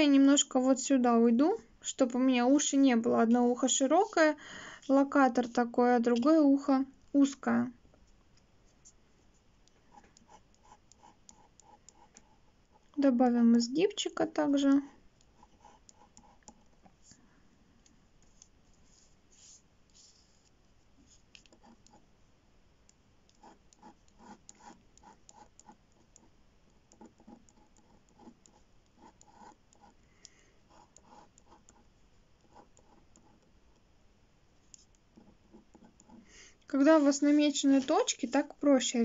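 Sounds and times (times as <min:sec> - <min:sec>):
pen scratching on paper: 0:09.9 - 0:13.0, 0:14.8 - 0:17.0, 0:18.2 - 0:22.0, 0:23.3 - 0:30.0, 0:30.7 - 0:33.6, 0:34.6 - 0:37.2.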